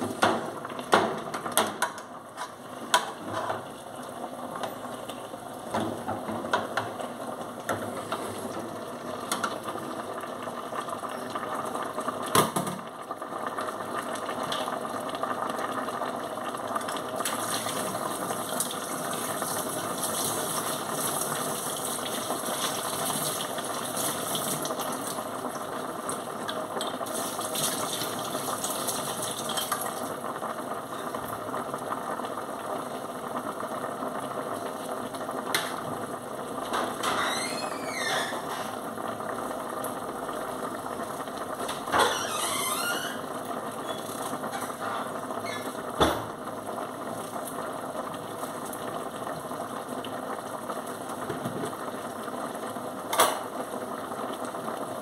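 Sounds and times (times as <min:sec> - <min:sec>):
fish sizzling in hot oil: 0:00.0 - 0:55.0.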